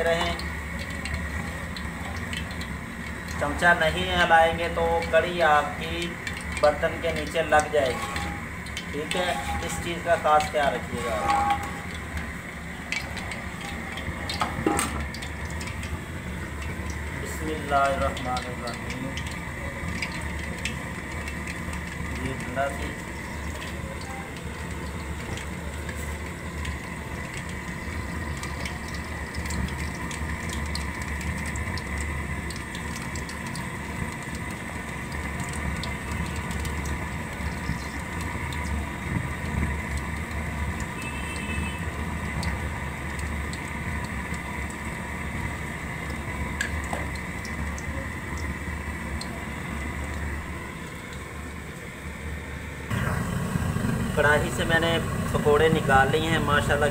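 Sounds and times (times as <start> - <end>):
batter sizzling in hot oil: 0.0 - 56.9
small pops and crackles: 16.6 - 48.5.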